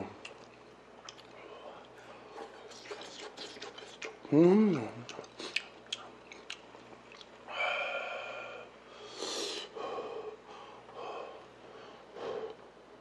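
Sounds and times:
soft chewing: 0.2 - 7.5.

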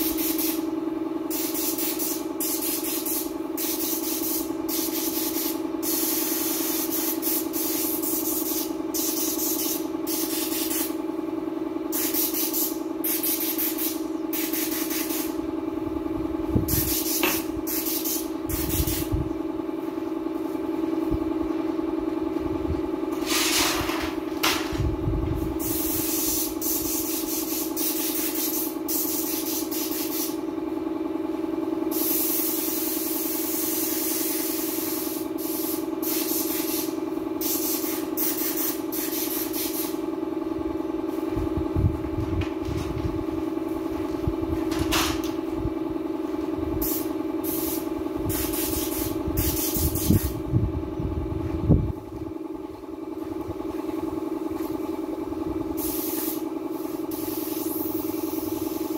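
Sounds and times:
paint spray gun hissing: 0.0 - 0.7, 1.3 - 11.0, 11.9 - 15.4, 16.7 - 19.1, 25.6 - 30.4, 31.9 - 40.0, 46.8 - 50.4, 55.8 - 58.9
steady hum: 0.0 - 58.9.

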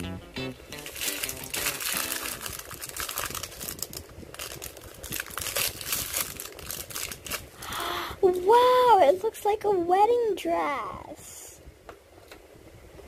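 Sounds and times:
foil wrapper crinkling: 0.8 - 7.6.

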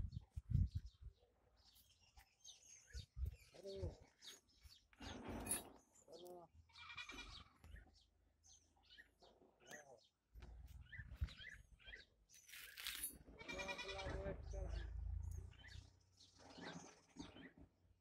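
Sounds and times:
small birds chirping: 0.0 - 18.0
goat bleating: 6.8 - 7.4, 13.4 - 14.2.

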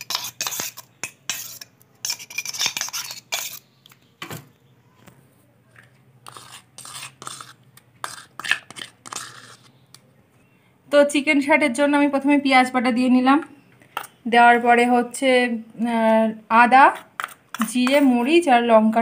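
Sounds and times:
metal spoon scraping a steel bowl: 0.0 - 3.7, 6.2 - 9.8, 16.9 - 18.3.

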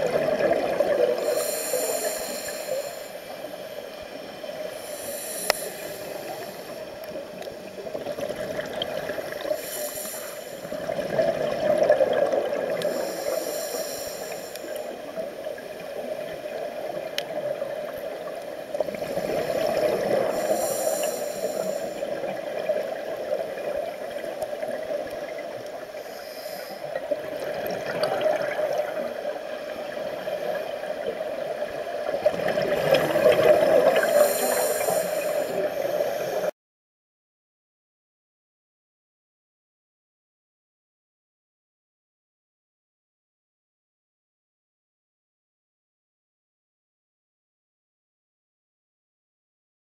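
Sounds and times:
gurgling exhaled bubbles: 0.0 - 2.8, 7.6 - 9.7, 10.6 - 13.6, 18.8 - 20.8, 27.0 - 36.5
regulator inhalation hiss: 1.2 - 7.8, 9.2 - 10.9, 12.8 - 16.7, 18.2 - 23.3, 25.7 - 27.2, 33.5 - 36.5.

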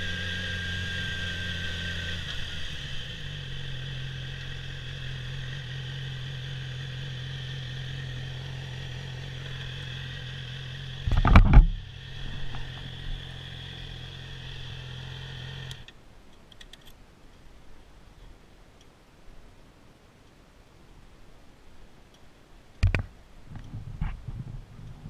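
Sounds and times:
motorcycle engine idling: 0.0 - 15.9.

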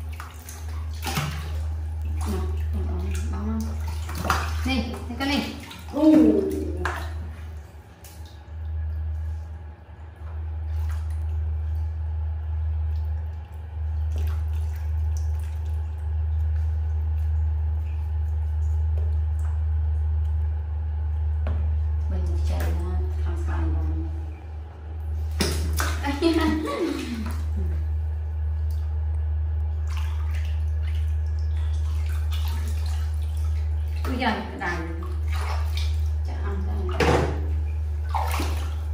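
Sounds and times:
steady low hum: 0.0 - 38.9
water splashing and dripping: 0.0 - 38.9.

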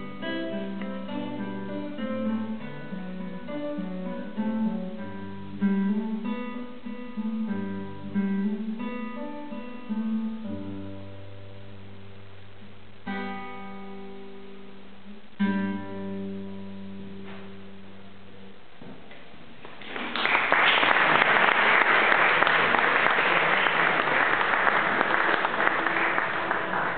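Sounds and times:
classical guitar chords ringing: 0.0 - 18.7
audience applause: 19.6 - 26.9.

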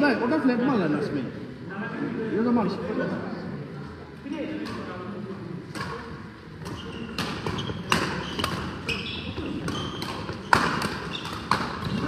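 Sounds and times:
badminton rackets hitting shuttlecock: 5.7 - 12.0
shoes squeaking on hall floor: 6.6 - 12.0.

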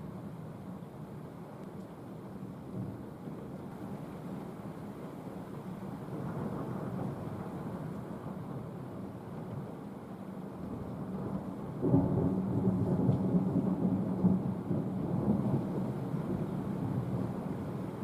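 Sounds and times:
thunder clap and rumble: 10.7 - 18.0.

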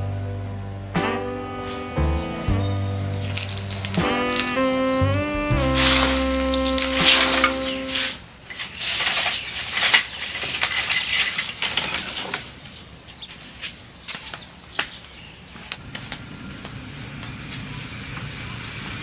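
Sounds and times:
high insect drone: 0.0 - 19.0
low rumble: 2.0 - 7.7
rustling: 3.1 - 14.6
bamboo poles clattering: 3.2 - 4.6, 5.6 - 15.0.

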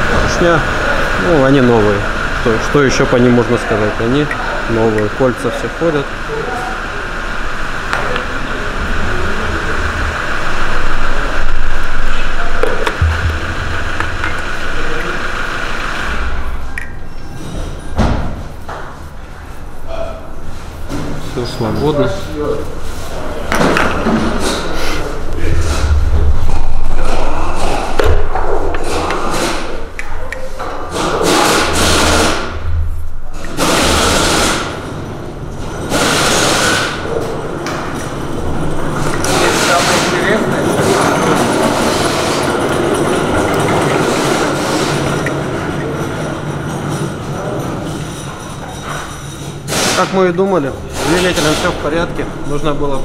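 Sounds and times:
motor rumbling: 0.0 - 47.6
low hum: 6.9 - 20.8, 24.6 - 30.6, 32.3 - 33.6.

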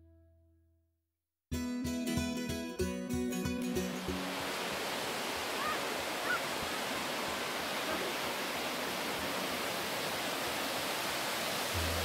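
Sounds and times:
waterfall rushing: 3.8 - 12.0.

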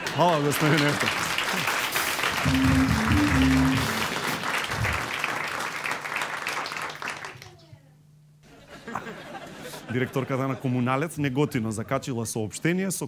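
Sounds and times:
studio audience applauding: 0.0 - 7.5
short musical sting: 2.5 - 4.1.

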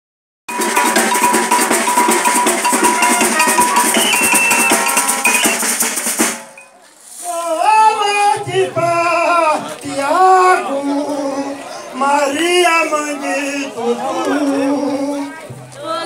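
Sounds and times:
fast folk percussion: 0.5 - 6.8
ringing metallic tones: 0.5 - 6.8.

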